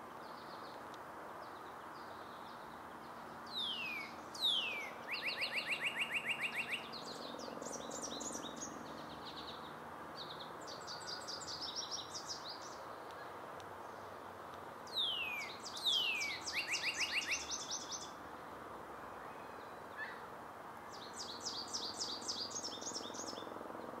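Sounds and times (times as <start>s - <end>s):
background hiss: 0.0s - 24.0s
cardinal whistling song: 3.5s - 6.9s, 14.9s - 18.0s.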